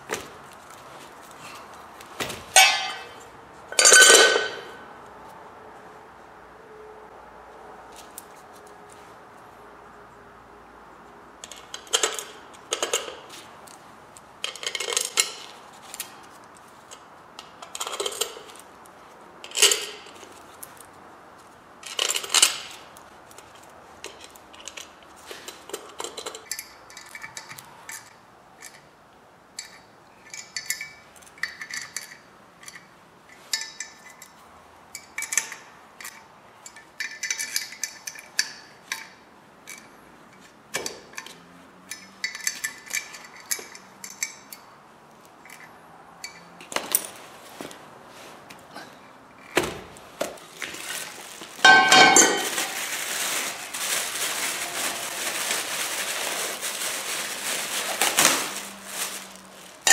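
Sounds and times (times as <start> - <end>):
metal bolts clinking: 2.4 - 4.8, 29.6 - 44.7.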